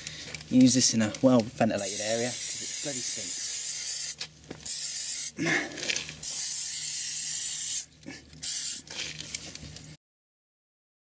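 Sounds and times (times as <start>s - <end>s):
aerosol can spraying: 1.8s - 5.4s, 6.2s - 9.0s.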